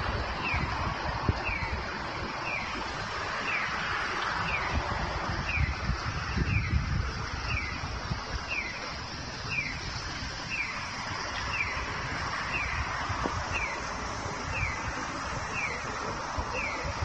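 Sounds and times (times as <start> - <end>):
pedestrian signal bird-chirp tone: 1.4 - 1.8, 2.4 - 2.8, 3.4 - 3.8, 4.4 - 5.8, 6.4 - 6.8, 7.4 - 7.8, 8.4 - 8.9, 9.5 - 13.9, 14.5 - 17.0.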